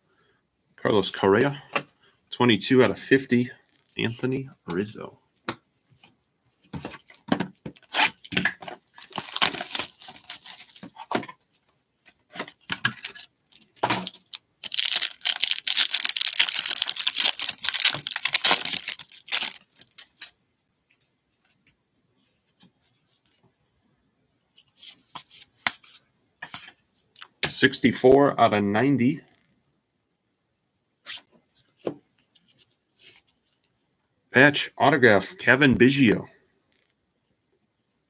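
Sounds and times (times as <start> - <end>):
foil wrapper crinkling: 7.8 - 11.1, 12.5 - 20.3
card box clicks and rustles: 7.8 - 11.3, 12.4 - 20.3.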